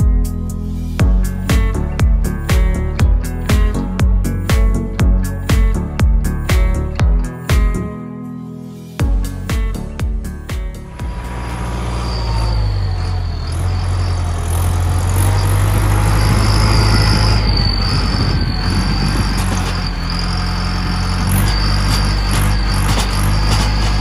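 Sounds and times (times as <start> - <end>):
tractor engine running: 0.0 - 8.0, 9.0 - 24.0
thin high whine: 8.5 - 24.0.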